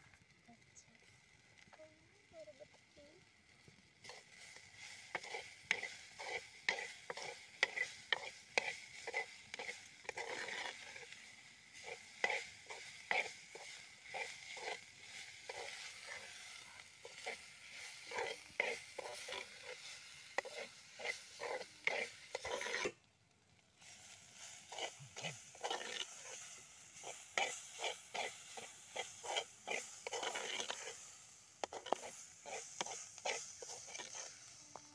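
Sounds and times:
onions sizzling: 0.0 - 34.9
spoon scraping clay pot: 4.0 - 23.0, 24.2 - 34.9.

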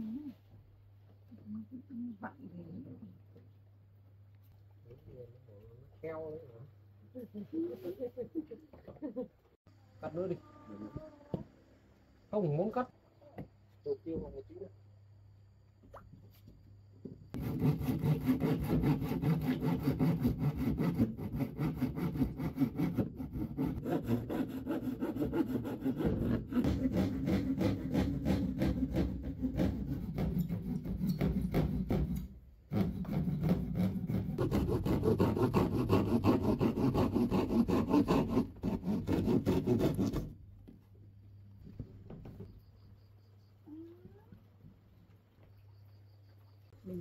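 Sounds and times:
hand saw cutting plywood: 17.4 - 40.4.

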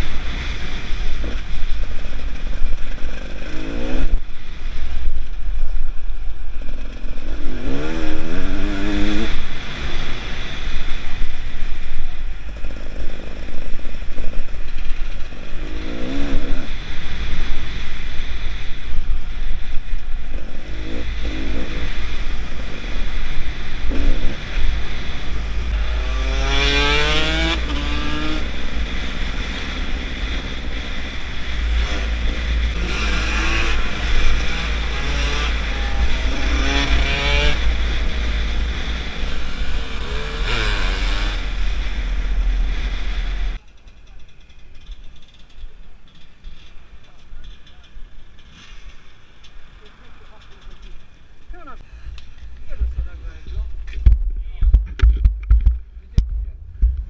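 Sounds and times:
two-stroke motorcycle engine revving: 0.0 - 43.6
low wind rumble: 0.0 - 57.0.

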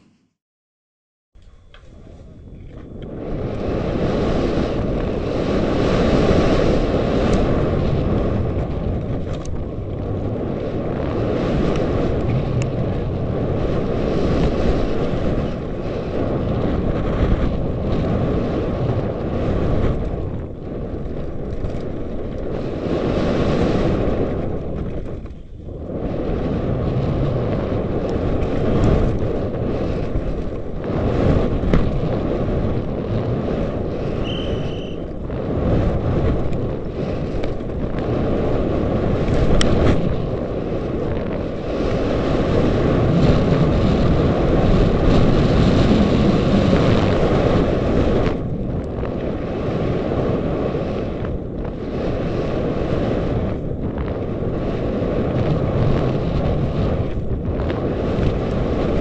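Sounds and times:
wind buffeting a microphone: 1.4 - 59.0
bike rattling over rocky trail: 18.8 - 22.7.

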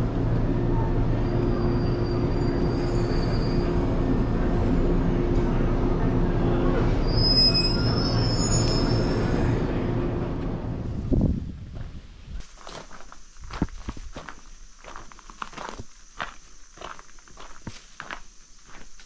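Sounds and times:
train rumbling on rails: 0.0 - 19.0
high-pitched wheel squeal: 1.2 - 4.0, 7.0 - 9.5.

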